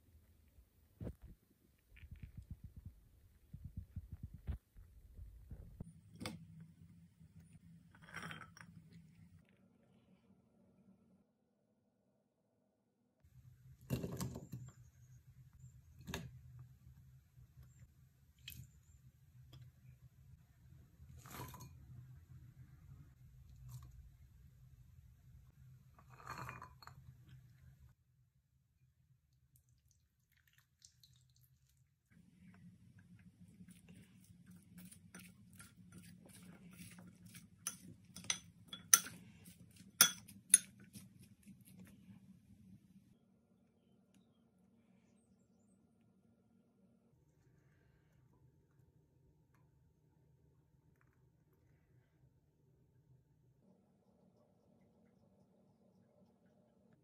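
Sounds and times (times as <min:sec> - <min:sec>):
low steady hum: 0:13.3 - 0:57.0
metal spoon clinking glass bowl: 0:36.8 - 0:39.2, 0:40.0 - 0:41.0.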